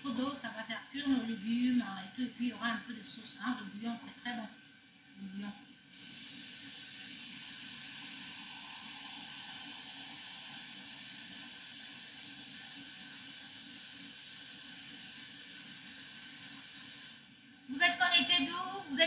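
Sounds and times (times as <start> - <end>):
tap running water: 5.9 - 17.3.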